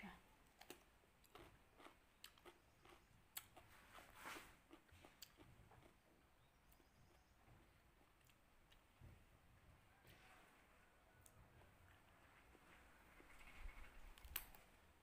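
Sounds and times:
chewing crisp cucumber: 0.4 - 8.9.

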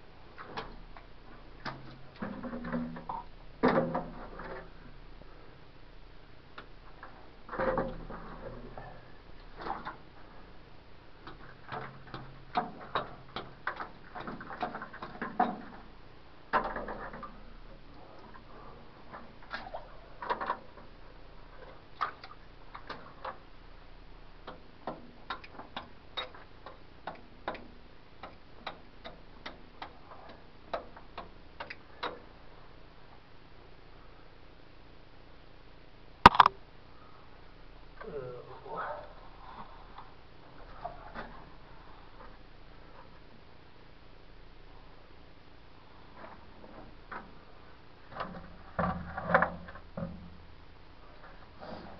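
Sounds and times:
loose rock clicks: 11.2 - 15.9, 16.5 - 18.5, 21.6 - 23.5, 24.4 - 32.3, 36.2 - 36.6.

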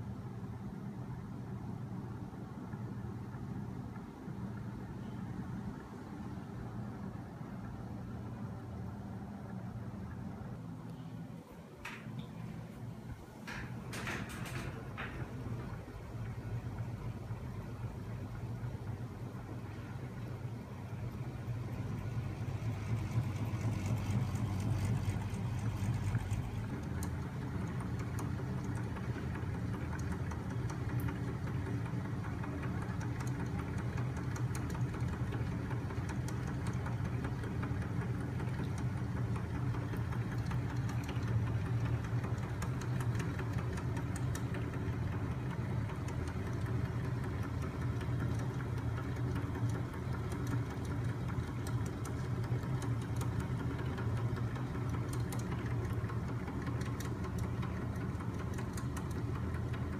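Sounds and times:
electric motor hum: 15.8 - 35.4
faint clicking: 22.6 - 59.9.

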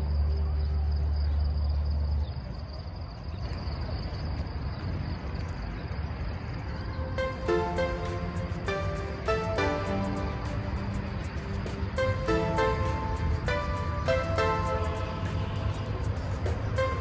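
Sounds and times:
outdoor background noise: 0.0 - 17.0
thin high whine: 6.6 - 17.0
background music: 6.8 - 17.0.

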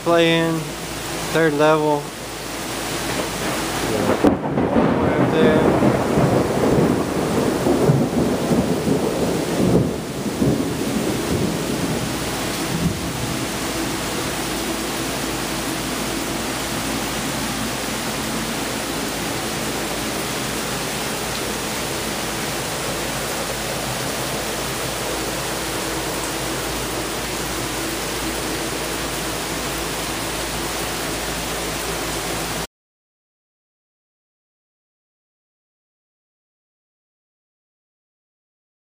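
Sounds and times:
rain-like hiss: 0.0 - 32.7
uneven rumbling: 2.8 - 31.8.

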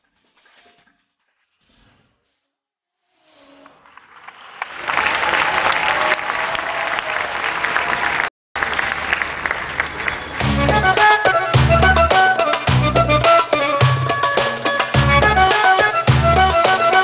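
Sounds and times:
audience applauding: 3.8 - 12.5.

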